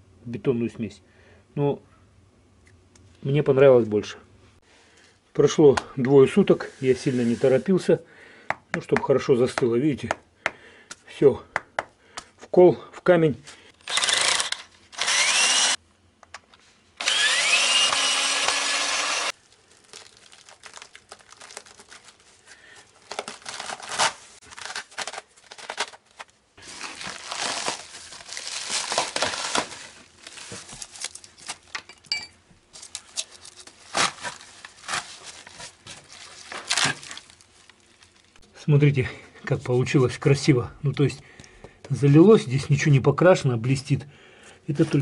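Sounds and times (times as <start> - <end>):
cordless drill whining: 13.8 - 15.8, 17.0 - 19.3.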